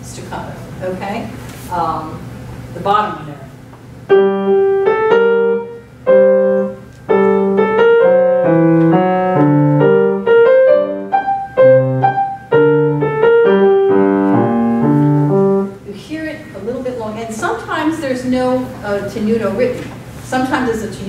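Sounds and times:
grand piano notes: 4.1 - 15.9.

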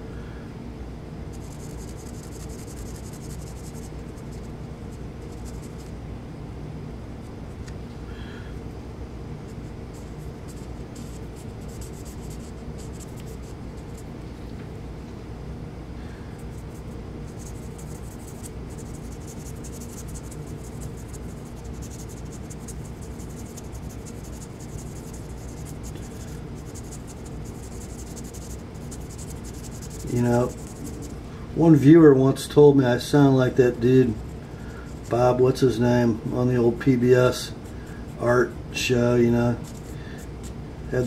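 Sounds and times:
steady low hum: 0.0 - 41.0
pen tip scratching metal: 26.6 - 31.2.

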